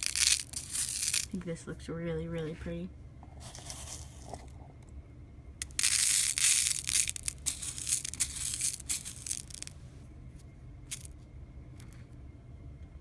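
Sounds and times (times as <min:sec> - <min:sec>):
plastic beads rattling in glass bowl: 0:00.0 - 0:01.4, 0:03.4 - 0:04.4, 0:05.6 - 0:09.7, 0:10.9 - 0:11.1.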